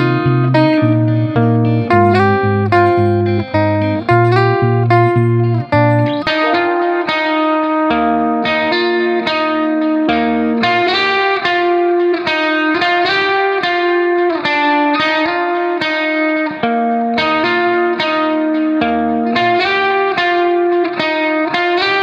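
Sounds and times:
picked-note melody: 0.0 - 9.4.

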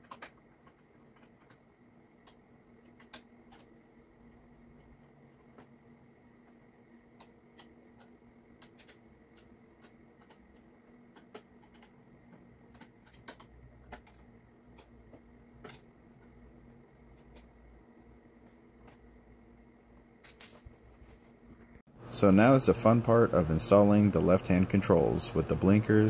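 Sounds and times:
low steady hum: 0.0 - 26.0
small clicks from hands working: 2.2 - 3.7, 7.2 - 16.4.

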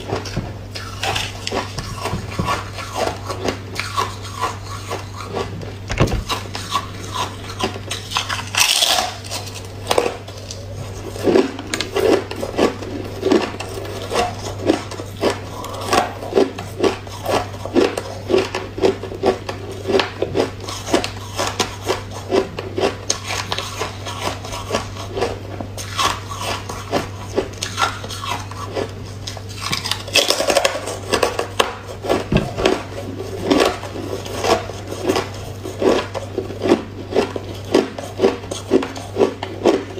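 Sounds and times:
crunching ice chewing: 0.0 - 39.9.

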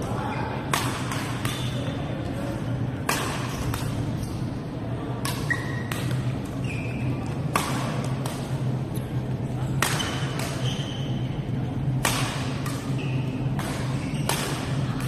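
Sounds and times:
racket hitting shuttlecock: 0.7 - 1.9, 3.0 - 4.0, 5.2 - 6.3, 7.2 - 8.8, 9.7 - 10.8, 11.9 - 14.8.

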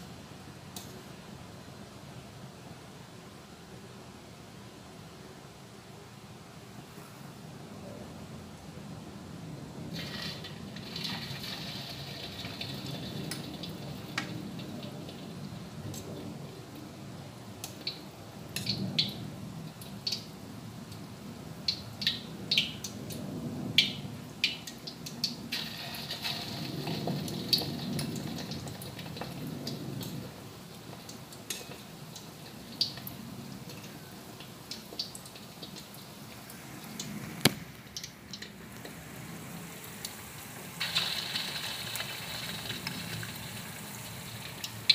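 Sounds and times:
patties sizzling in hot oil: 9.9 - 16.1, 17.6 - 23.0, 23.7 - 44.9.

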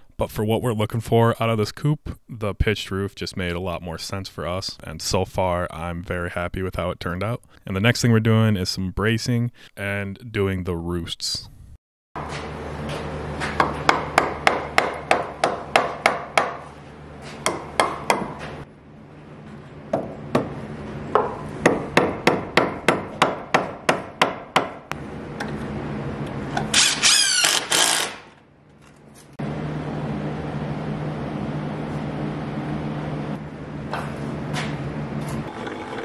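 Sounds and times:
high rasping whir: 26.7 - 28.2.

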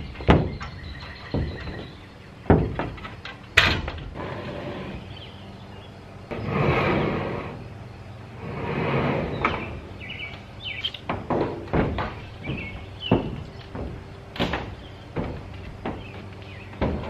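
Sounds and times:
footsteps on metal roof: 0.0 - 5.1, 9.0 - 17.0
birds chirping: 0.0 - 17.0.

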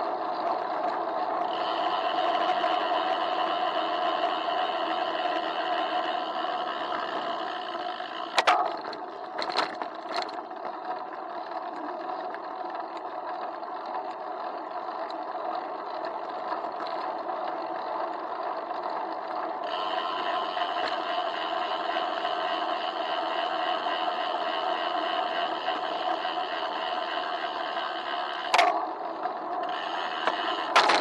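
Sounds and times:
bike jolting over bumps: 28.5 - 31.0.

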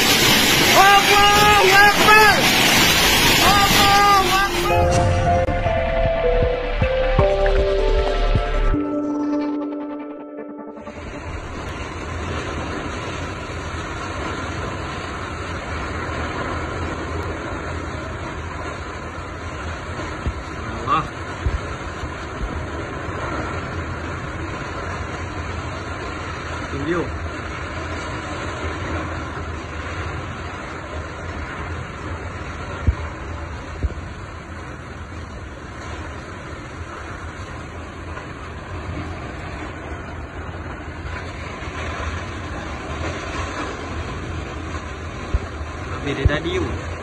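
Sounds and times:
storm wind roaring: 0.0 - 8.8, 10.9 - 47.0
strong wind blowing: 0.0 - 8.8
music: 4.5 - 11.7
wind rumble on microphone: 11.2 - 26.7, 27.3 - 47.0
wind buffeting microphone: 29.5 - 47.0.

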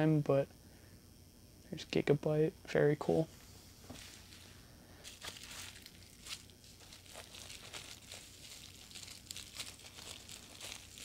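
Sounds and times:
bubble wrap crinkling: 3.9 - 11.0.

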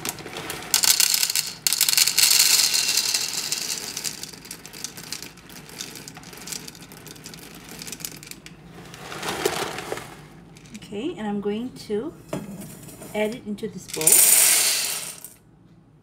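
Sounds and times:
dried chickpeas pouring into cup: 0.0 - 10.8, 14.0 - 15.3.

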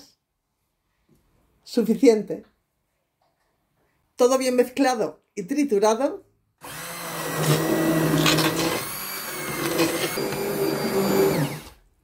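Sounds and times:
immersion blender motor humming: 6.6 - 11.8.

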